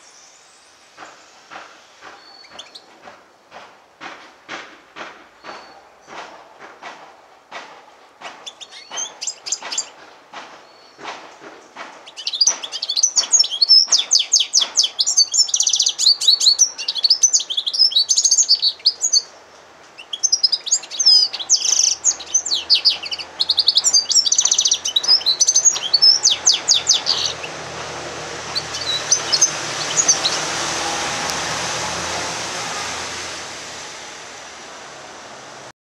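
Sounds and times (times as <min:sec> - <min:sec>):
steady hiss with low hum: 0:00.0 - 0:05.4
canary singing trills: 0:08.4 - 0:10.0, 0:12.0 - 0:19.3, 0:20.0 - 0:30.8.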